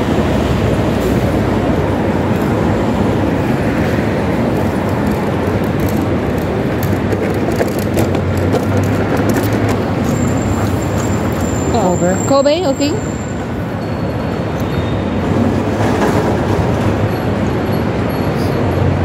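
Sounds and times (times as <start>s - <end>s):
busy city street traffic: 0.0s - 19.0s.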